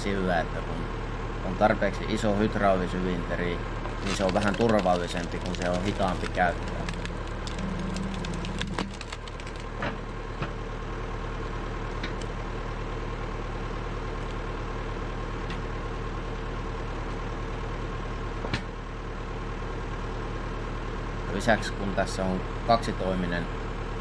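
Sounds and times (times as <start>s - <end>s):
tractor engine running: 0.0s - 24.0s
log splitter cracks and knocks: 3.8s - 10.6s.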